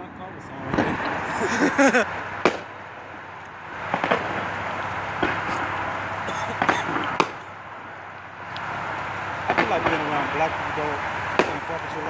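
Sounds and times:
crackling rumble: 0:02.1 - 0:12.0
firework bangs: 0:03.9 - 0:04.5, 0:06.4 - 0:07.4, 0:11.4 - 0:12.0.

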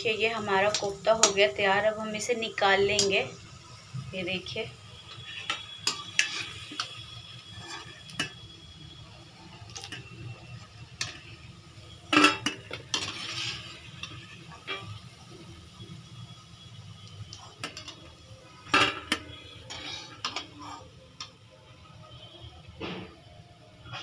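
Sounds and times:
faint oil sizzling: 0:00.0 - 0:22.8
metal spoon scraping a wok: 0:05.1 - 0:08.4, 0:09.7 - 0:15.2, 0:18.6 - 0:21.3.

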